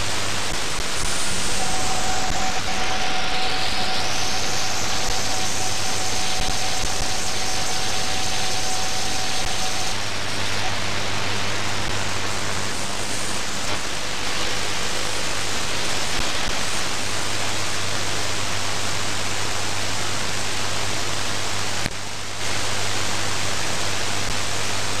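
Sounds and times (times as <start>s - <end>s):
low hum: 0.0s - 16.6s
shortwave radio static hiss: 0.0s - 25.0s.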